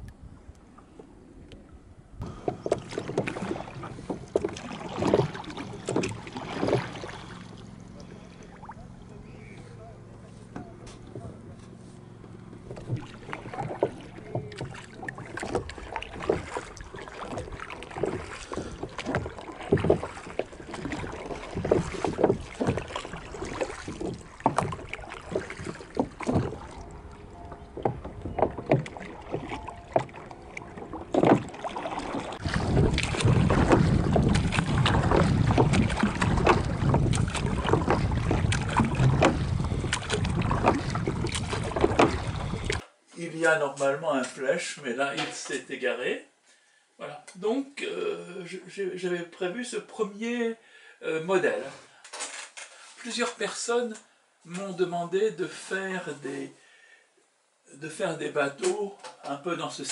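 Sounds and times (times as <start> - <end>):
oars knocking in rowlocks: 2.2 - 42.8
water splashing: 2.2 - 42.8
wind buffeting microphone: 12.5 - 42.8.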